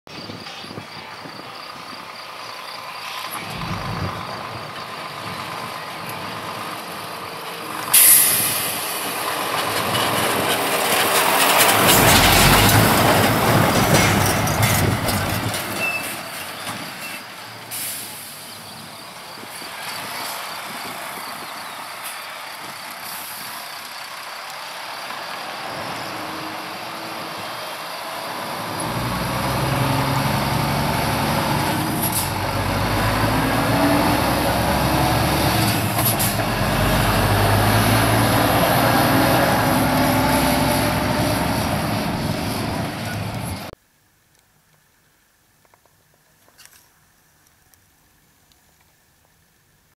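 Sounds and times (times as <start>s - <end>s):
truck passing by: 1.2s - 43.8s
sudden loud burst of noise: 7.9s - 10.2s.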